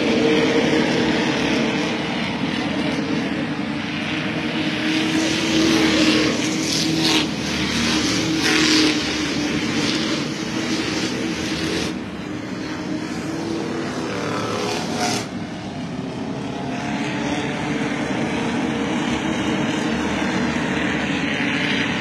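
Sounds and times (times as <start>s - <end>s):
cars passing close by: 0.0s - 22.0s
race car engines droning: 0.0s - 22.0s.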